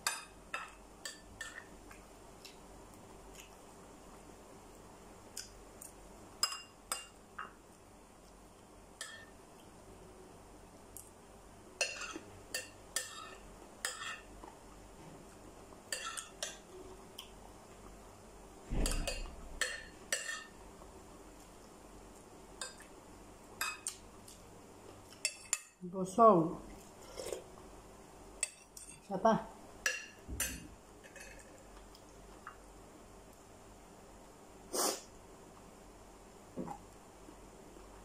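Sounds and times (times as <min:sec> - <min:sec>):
metal spoon clinking on dishes: 0:06.4 - 0:07.5, 0:09.0 - 0:09.3, 0:11.8 - 0:14.3, 0:15.9 - 0:16.7, 0:18.8 - 0:20.6, 0:25.2 - 0:25.8, 0:28.4 - 0:29.1, 0:29.8 - 0:31.5.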